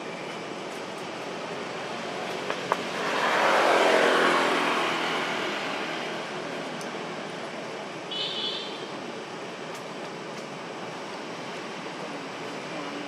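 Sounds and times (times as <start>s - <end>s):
motor vehicle passing: 2.0s - 7.1s.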